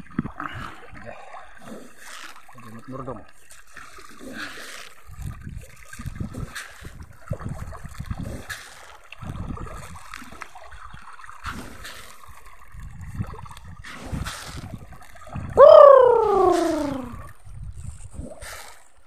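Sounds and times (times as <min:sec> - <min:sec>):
pond water splashing and gurgling: 0:00.0 - 0:19.0
sharp fish splashes: 0:15.7 - 0:17.2.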